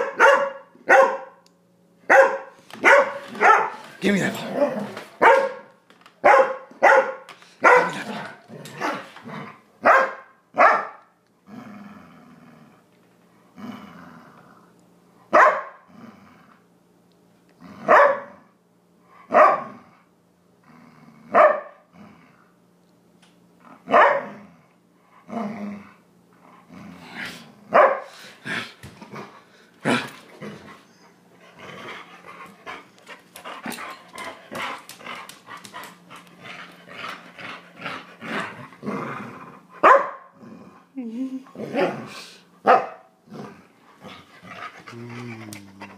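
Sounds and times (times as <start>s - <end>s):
dog barking: 0.0s - 1.4s, 2.1s - 3.8s, 5.2s - 8.1s, 9.8s - 11.1s, 15.3s - 15.8s, 17.9s - 18.4s, 19.3s - 19.7s, 21.3s - 21.8s, 23.9s - 24.3s, 27.7s - 28.1s, 39.8s - 40.3s, 42.6s - 43.1s.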